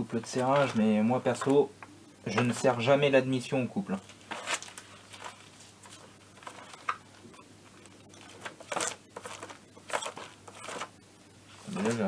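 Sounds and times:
paper pages turning: 0.2 - 1.6, 3.9 - 11.0.

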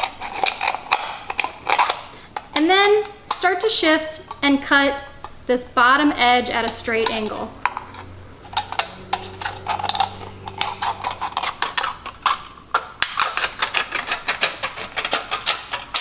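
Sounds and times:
scissors cutting metal can: 0.0 - 2.0, 6.6 - 16.0.

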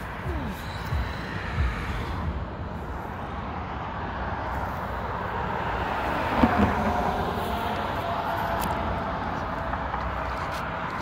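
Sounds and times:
highway traffic rushing: 0.0 - 11.0.

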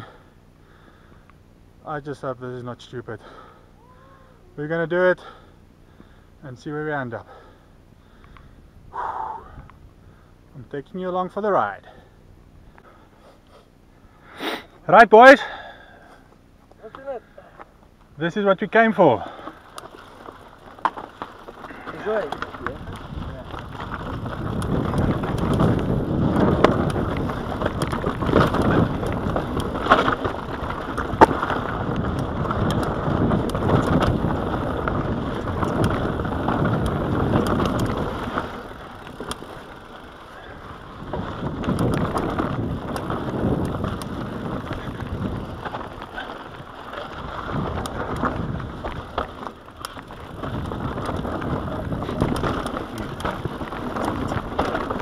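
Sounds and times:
bike tyres rushing over dirt: 16.8 - 55.0
bike knocking and rattling: 18.8 - 55.0.

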